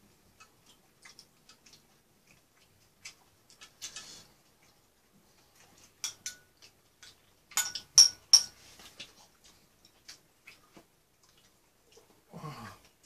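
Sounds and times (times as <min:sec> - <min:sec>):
wet mouth chewing smacks: 0:00.4 - 0:03.9, 0:08.9 - 0:12.2.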